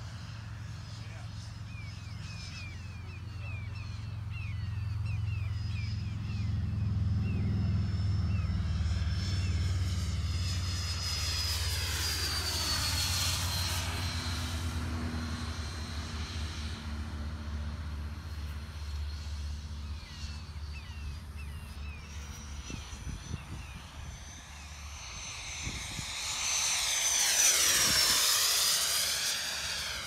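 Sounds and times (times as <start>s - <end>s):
model jet fan whining: 0.0s - 30.0s.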